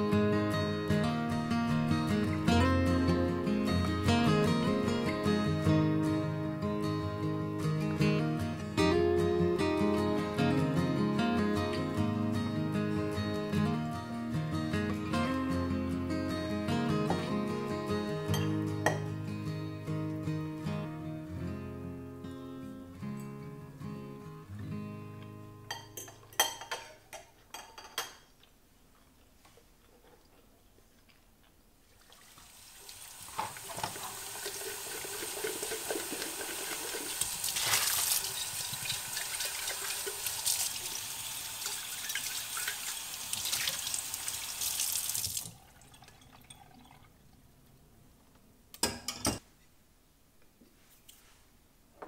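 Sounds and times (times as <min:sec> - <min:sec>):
forks clinking on plates: 0:25.7 - 0:28.3
tap water running into sink: 0:32.0 - 0:47.0.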